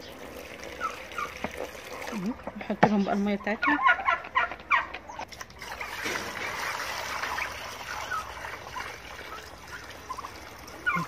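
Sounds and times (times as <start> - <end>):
young turkey calling: 0.7 - 1.4, 3.0 - 5.3, 7.3 - 11.0.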